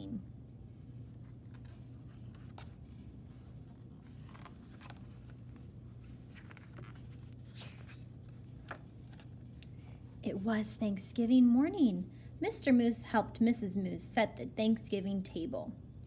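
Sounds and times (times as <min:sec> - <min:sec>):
low steady hum: 0:00.0 - 0:16.0
book pages rustling: 0:01.0 - 0:09.6.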